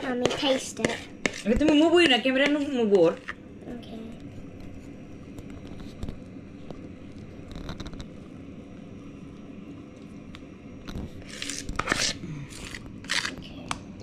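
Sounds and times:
spoon scraping frosting in bowl: 0.0 - 3.4, 11.2 - 13.4.

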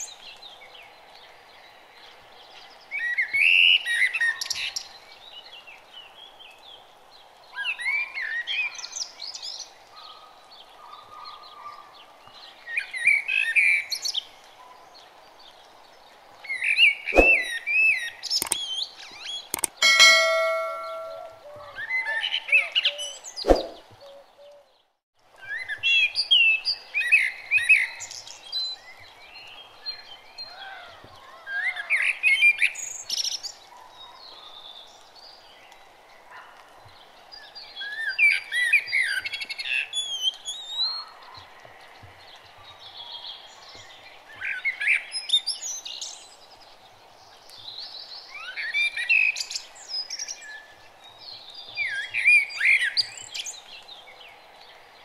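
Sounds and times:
birds chirping and singing: 16.5 - 24.8
sharp clicks: 18.3 - 18.6, 19.5 - 21.3
held ringing tone: 19.8 - 21.6.

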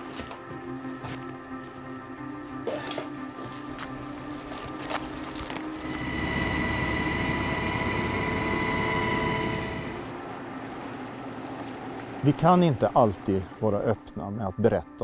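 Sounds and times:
helicopter turbine whine and rumble: 5.8 - 10.3.

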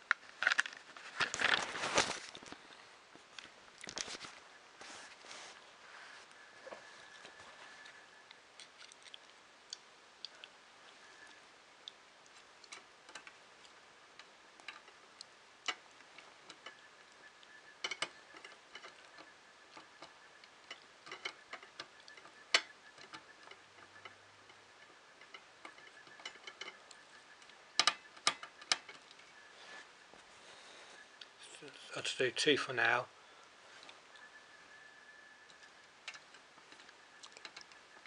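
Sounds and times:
small parts clicking: 11.2 - 29.3, 35.4 - 38.0.

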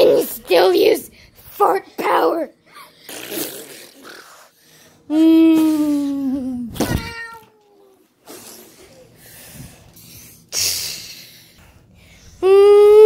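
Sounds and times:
child high-pitched hum: 5.1 - 9.2, 12.2 - 13.0.

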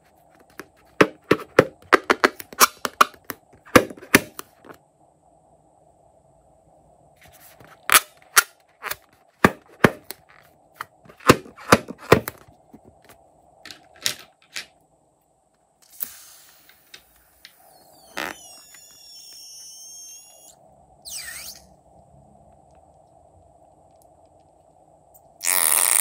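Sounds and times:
faint steady hum: 0.0 - 26.0
brief hiss: 15.8 - 18.1.

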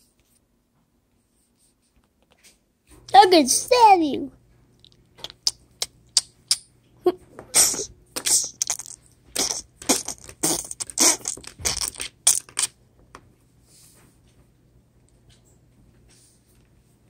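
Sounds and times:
mouth clicks: 4.8 - 6.7, 7.5 - 12.8
child making mouth sound effects: 5.2 - 12.7
hissing spitting bursts: 7.6 - 8.8, 9.4 - 11.8.

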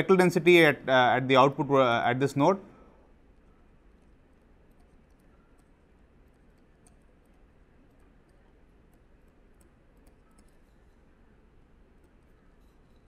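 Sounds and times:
stylus ticking on writing tablet: 3.4 - 11.1.

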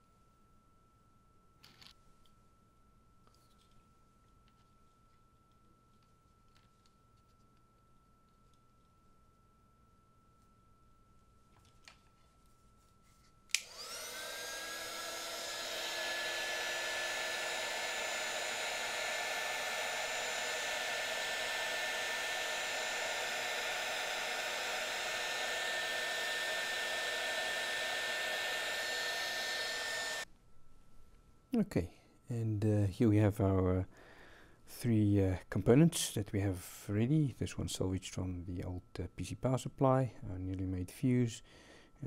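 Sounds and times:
heat gun switch click: 13.5 - 14.6
heat gun fan blowing: 13.5 - 30.3.

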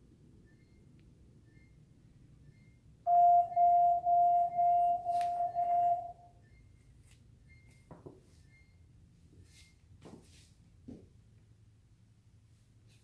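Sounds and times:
loud beeping tone: 2.4 - 6.7.

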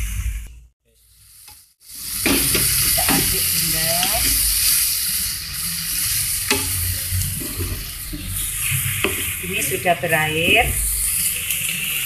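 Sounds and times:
vegetables sizzling in a pan: 1.0 - 12.0
spatula knocking and scraping pan: 2.2 - 4.7, 6.4 - 10.8.

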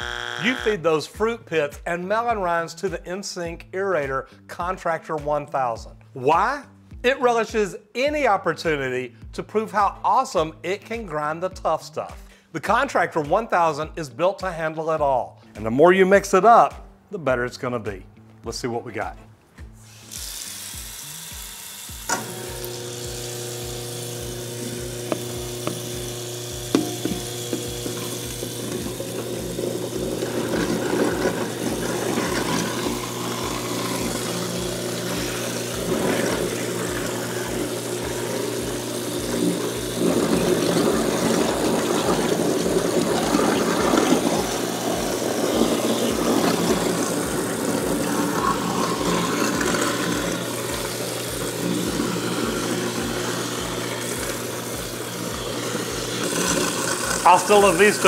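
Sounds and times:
motor hum: 0.0 - 0.7, 20.8 - 58.0
running tap water: 19.9 - 58.0
garbage disposal grinding: 20.2 - 58.0.

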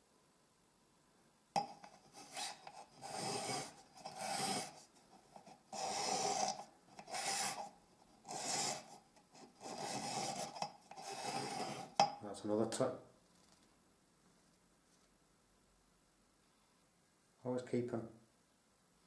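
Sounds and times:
blade scraping varnish off wood: 1.9 - 4.8, 8.3 - 12.0.

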